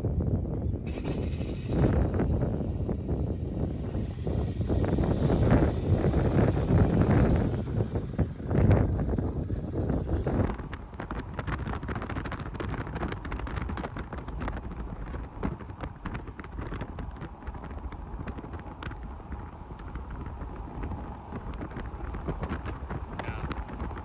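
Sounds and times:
wind buffeting microphone: 0:00.0 - 0:24.0
small crackles and ticks: 0:12.3 - 0:24.0.

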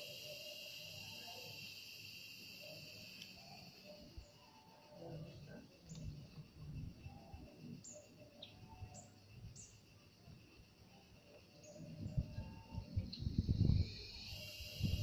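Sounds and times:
high insect drone: 0:00.0 - 0:15.0
bird chirps: 0:07.2 - 0:09.9.

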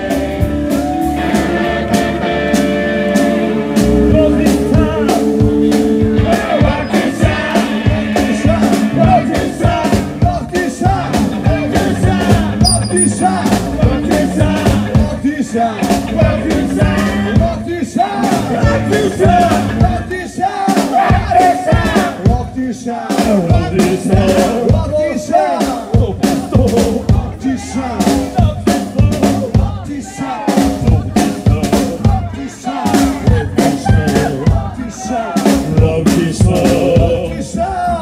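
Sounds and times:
electric guitar: 0:00.0 - 0:20.2
rockabilly band playing live: 0:00.0 - 0:38.0
steady drum beat: 0:00.0 - 0:38.0
voices singing: 0:00.0 - 0:38.0.

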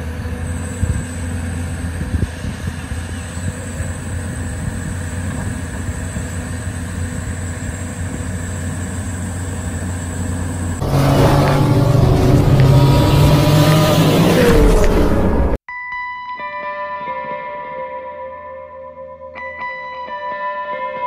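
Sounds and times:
heavy diesel engines running: 0:00.0 - 0:15.6
intro music: 0:10.8 - 0:15.6.

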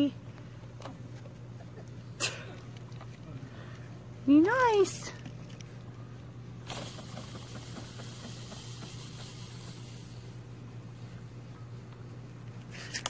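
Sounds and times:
background hiss: 0:06.5 - 0:12.9.

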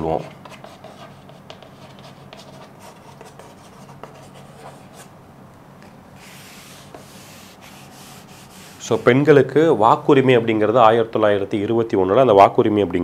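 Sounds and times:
chalk tapping and scratching: 0:00.0 - 0:05.1, 0:06.2 - 0:09.3
chalk scraping on blackboard: 0:00.1 - 0:05.1, 0:06.2 - 0:09.3.

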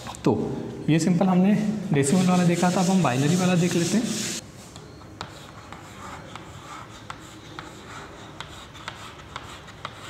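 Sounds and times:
chalk writing on blackboard: 0:02.0 - 0:10.0.

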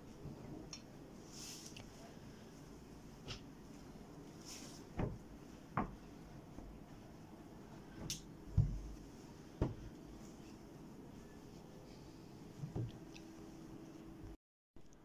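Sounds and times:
soft knocks and thumps on table: 0:05.0 - 0:06.0, 0:08.5 - 0:09.0, 0:09.6 - 0:09.9, 0:12.6 - 0:13.0.

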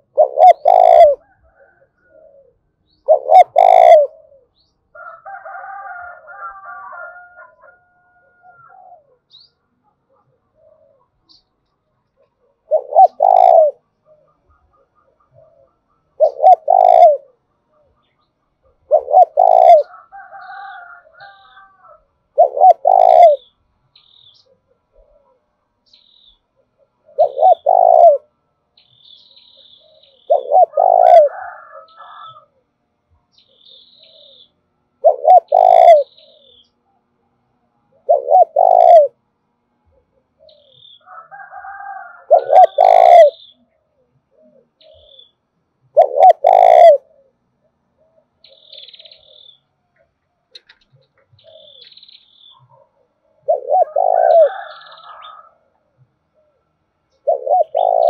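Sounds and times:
dove cooing: 0:00.0 - 0:11.4, 0:12.1 - 0:23.6, 0:24.2 - 0:25.6, 0:26.3 - 0:28.5, 0:29.5 - 0:32.8, 0:33.5 - 0:49.7, 0:50.5 - 0:58.0
small birds chirping: 0:09.3 - 0:31.2, 0:33.2 - 0:37.1, 0:39.8 - 0:41.2, 0:42.4 - 0:55.5.

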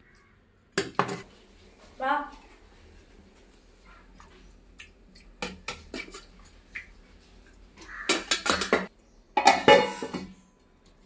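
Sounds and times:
metal spoon scraping metal pot: 0:08.1 - 0:10.4.

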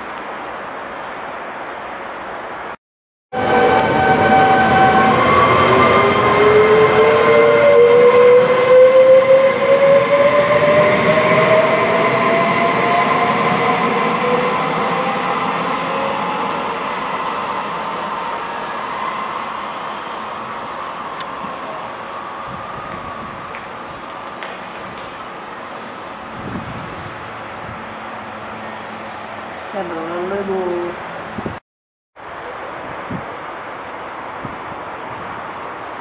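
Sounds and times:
wheels rumbling on rail: 0:03.3 - 0:31.6.

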